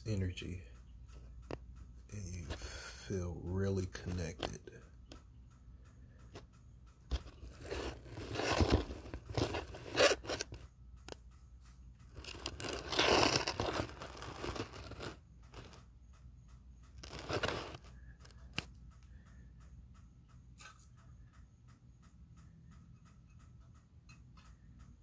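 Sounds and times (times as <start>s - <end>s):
faint regular ticking: 0.0s - 25.0s
objects rustling and scraping: 7.1s - 10.6s, 12.1s - 15.8s, 17.0s - 18.6s.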